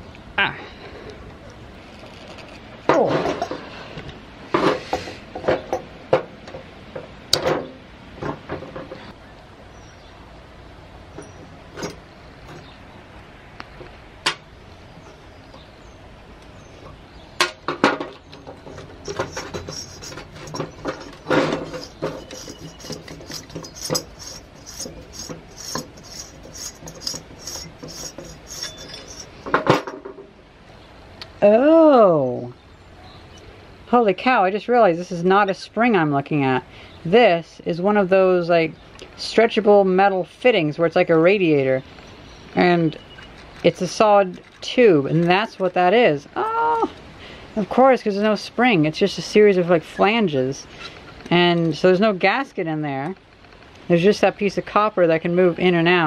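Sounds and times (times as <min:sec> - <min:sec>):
small metal clicks and rattles: 0:18.0 - 0:29.9, 0:43.1 - 0:45.7
metal parts clinking and scraping: 0:18.2 - 0:30.0, 0:43.0 - 0:45.7.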